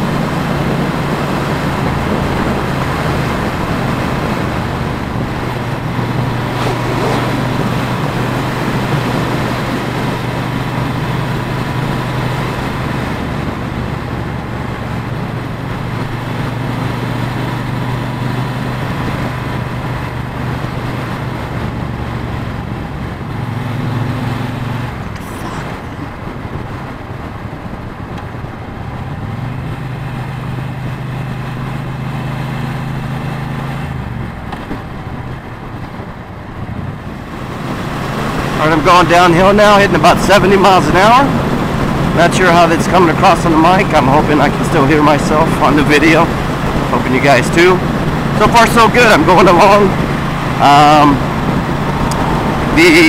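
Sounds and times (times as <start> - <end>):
motorcycle engine running: 0.0 - 38.5
wind rushing over microphone: 0.0 - 53.0.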